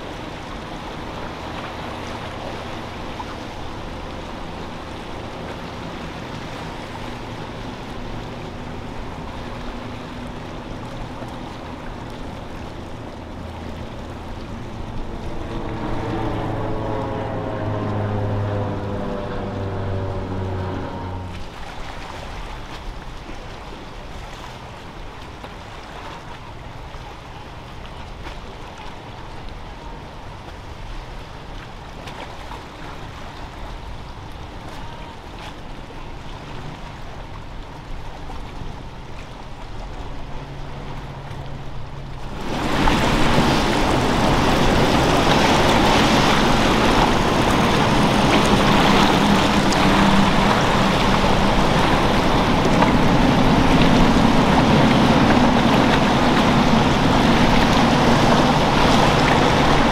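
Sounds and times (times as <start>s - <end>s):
motorboat engines: 0.0s - 59.9s
water wash and surf: 0.0s - 59.9s.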